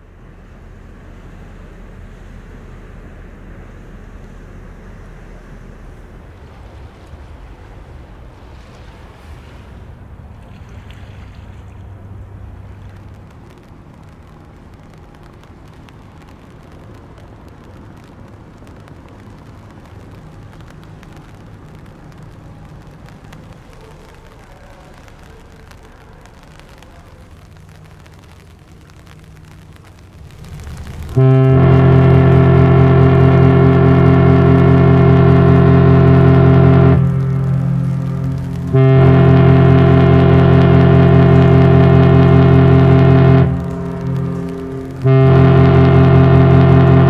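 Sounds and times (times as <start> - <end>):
low rumble across water: 0.0 - 47.0
ship horn blast: 30.8 - 47.0.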